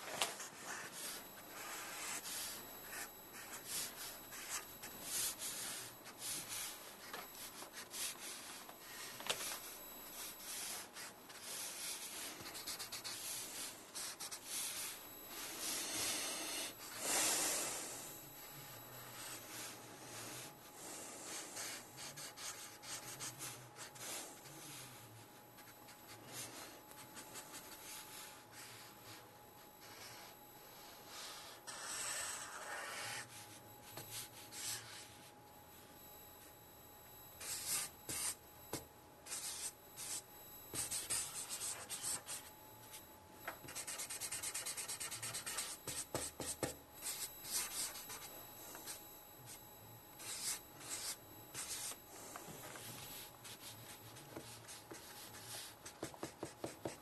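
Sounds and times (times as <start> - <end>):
marker scratching on paper: 31.1 - 33.4, 37.4 - 38.4, 39.3 - 42.4, 43.6 - 48.3, 50.2 - 52.0, 53.1 - 57.0.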